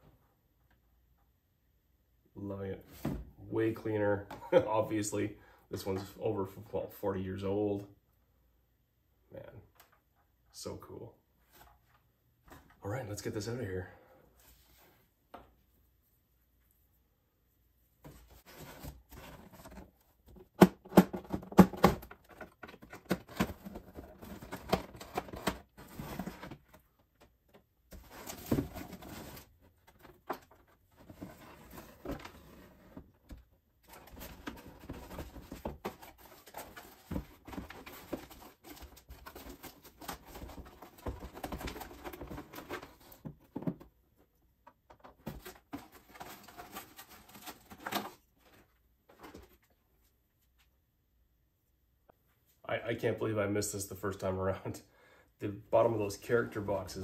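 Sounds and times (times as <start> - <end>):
cardboard rustling and scraping: 18.0 - 26.9, 27.9 - 44.0, 45.0 - 50.1.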